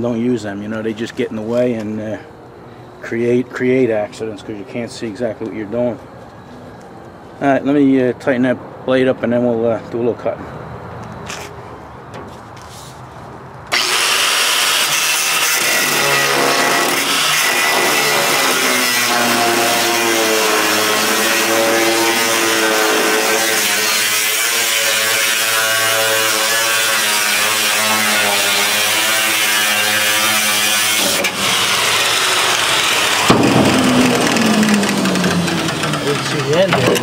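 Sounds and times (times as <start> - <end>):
angle grinder cutting steel: 13.7 - 37.0.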